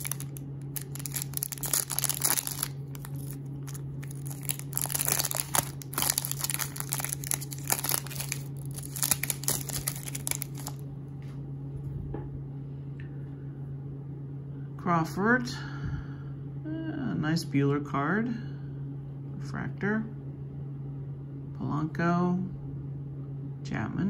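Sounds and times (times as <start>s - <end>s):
wrapper tearing and crinkling: 0.0s - 10.8s.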